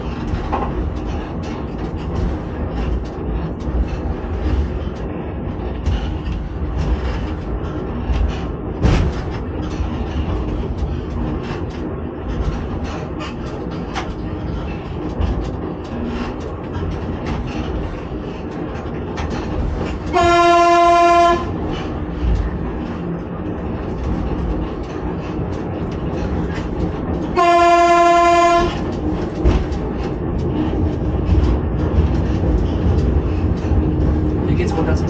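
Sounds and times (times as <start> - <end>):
rail clicks: 0.0 - 35.0
train rumbling on track: 0.0 - 35.0
train horn blasts: 20.1 - 21.6, 27.3 - 28.8.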